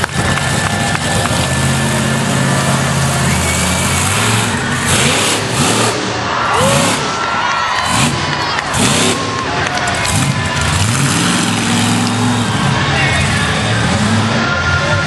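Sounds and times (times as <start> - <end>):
truck engine revving: 0.0 - 15.0.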